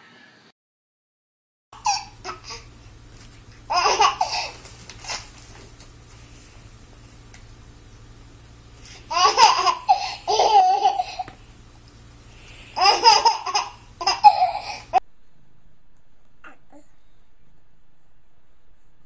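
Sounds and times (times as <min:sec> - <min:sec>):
baby laughing and giggling: 0:01.8 - 0:02.7, 0:03.7 - 0:05.2, 0:09.1 - 0:11.4, 0:12.8 - 0:15.0
low steady hum: 0:01.8 - 0:19.0.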